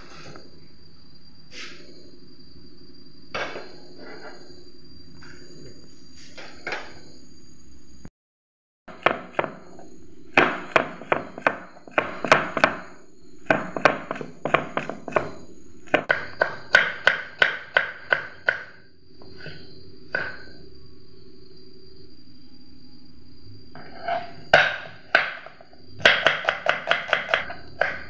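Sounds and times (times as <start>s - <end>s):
knife chopping on wooden board: 23.8s - 28.0s.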